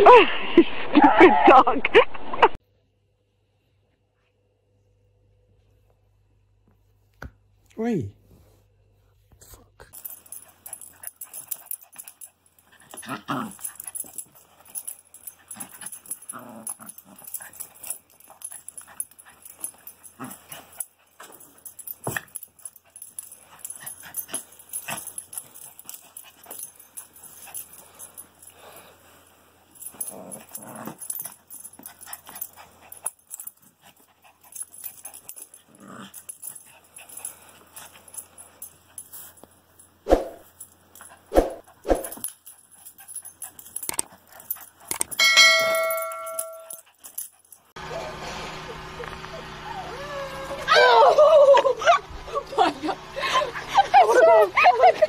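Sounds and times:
small dog whining and whimpering: 49.2s - 52.0s.

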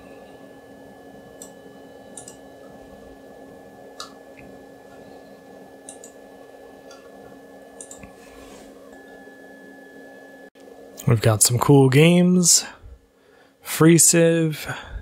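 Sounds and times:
low computer hum: 0.0s - 15.0s.

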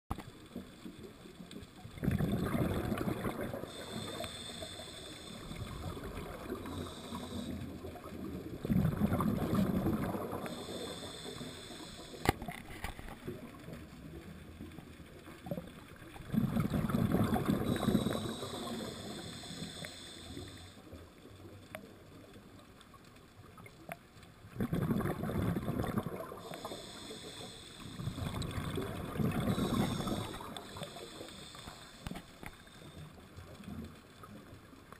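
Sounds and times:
exhaled bubbles rushing: 1.9s - 3.8s, 7.8s - 10.6s, 16.1s - 18.8s, 24.5s - 26.5s, 28.0s - 30.8s
regulator hissing on inhale: 2.7s - 8.1s, 9.4s - 12.4s, 17.3s - 21.0s, 26.2s - 33.2s.

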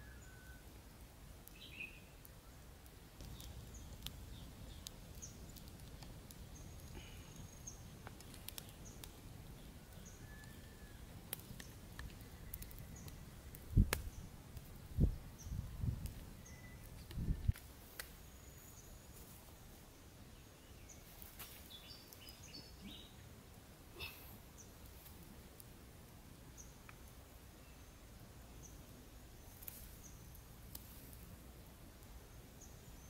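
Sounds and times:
wood fire crackling: 0.0s - 33.0s
birds chirping: 3.2s - 14.3s, 20.0s - 23.3s.

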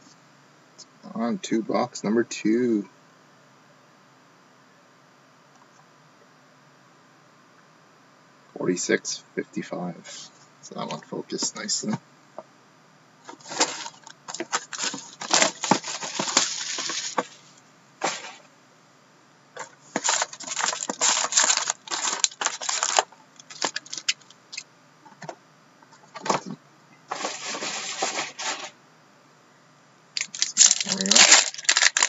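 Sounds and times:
foil packs rustling and clicking: 13.3s - 18.5s, 19.6s - 24.6s, 27.1s - 28.7s, 30.2s - 32.0s
plastic shrink-wrap crackling: 13.4s - 18.4s, 20.0s - 24.6s, 30.2s - 32.0s.

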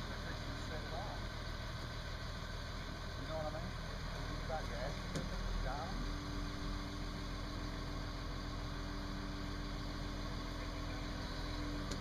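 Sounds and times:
diesel engine running: 0.0s - 12.0s.

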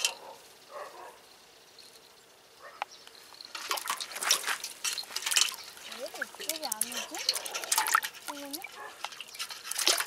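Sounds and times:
water splashing in a metal pot: 3.4s - 10.0s.

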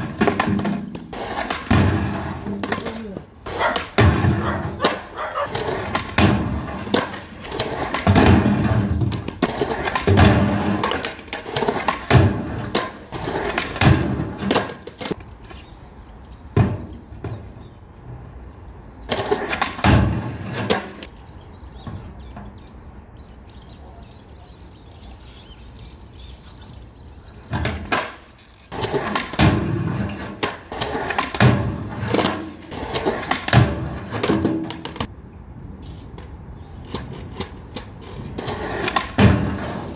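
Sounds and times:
skateboard clacking on ground: 0.0s - 15.6s, 19.1s - 21.1s, 27.5s - 35.1s, 36.2s - 39.9s
skateboard wheels rolling on concrete: 0.0s - 39.9s.

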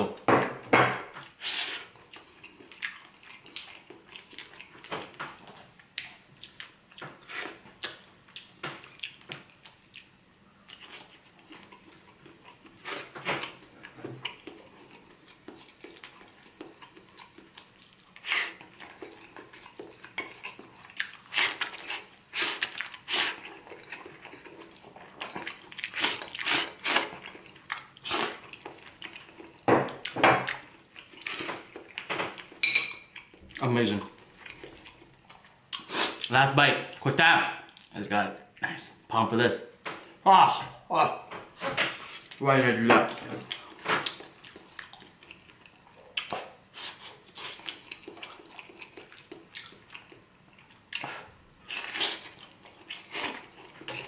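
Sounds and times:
chewing mouth sounds: 43.5s - 54.0s.

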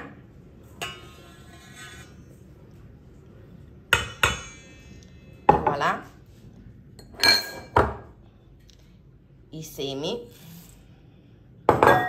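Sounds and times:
bowl clattering and scraping: 0.0s - 2.6s, 6.9s - 8.1s
bowls clinking and ringing: 0.7s - 2.5s, 4.0s - 5.7s, 7.0s - 8.0s.

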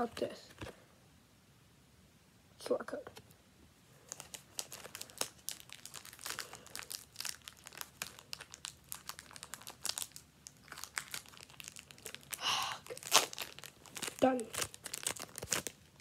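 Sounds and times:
crinkly packaging crackling: 4.0s - 16.0s.

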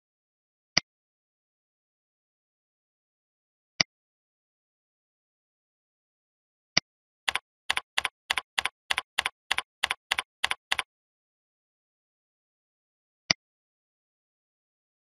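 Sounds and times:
typing on computer keyboard: 7.3s - 10.9s.

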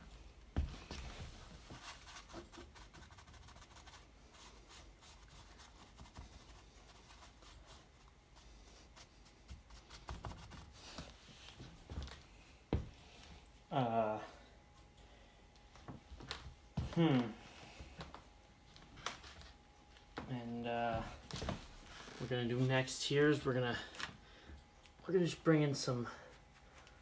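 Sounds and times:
scratchy paint strokes: 1.6s - 11.6s.

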